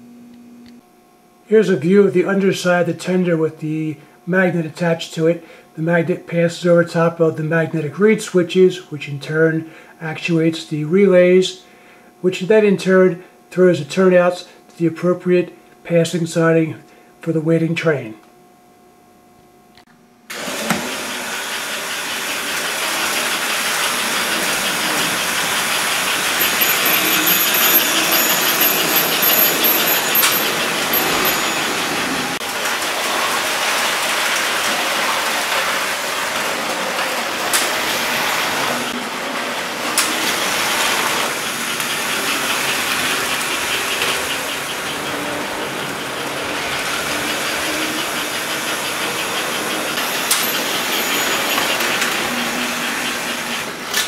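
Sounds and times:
wheels rolling on track: 20.3s - 54.0s
toy train motors whirring: 20.4s - 54.0s.

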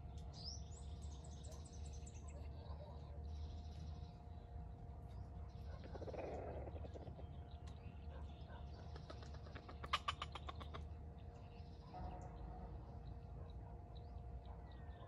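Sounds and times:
small birds chirping: 0.0s - 12.3s.

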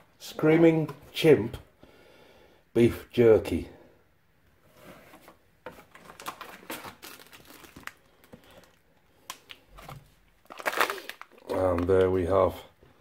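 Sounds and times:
plastic pouches crinkling: 5.7s - 12.6s.

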